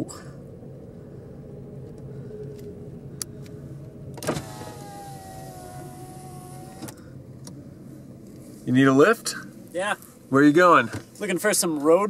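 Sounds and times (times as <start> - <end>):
car engine idling: 0.0 - 12.0
power window motor whining: 4.2 - 7.0.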